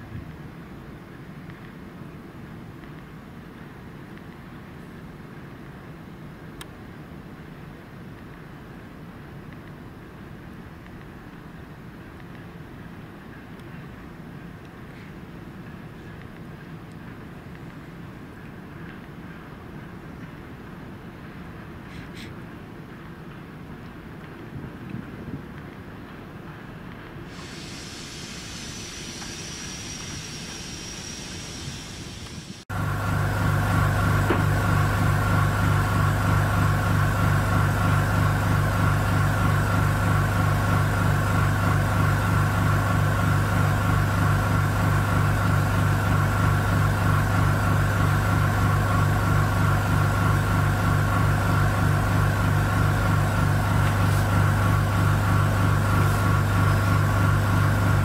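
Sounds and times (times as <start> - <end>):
distant rail yard: 0.0 - 58.0
electric machinery hum: 27.2 - 58.0
thin high whine: 27.3 - 34.6.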